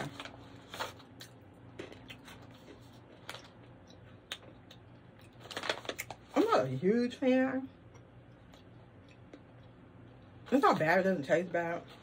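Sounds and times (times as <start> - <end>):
faint low hum: 0.0 - 12.0
plastic pouch crackling: 5.4 - 6.2.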